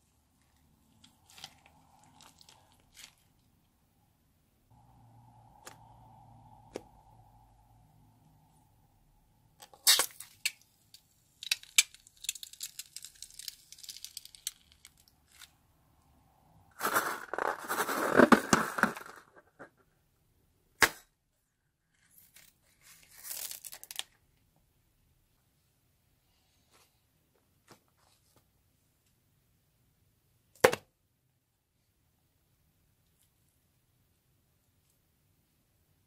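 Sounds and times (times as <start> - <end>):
wet slime squelching: 0.3 - 3.5
beads pattering onto slime: 11.3 - 15.5.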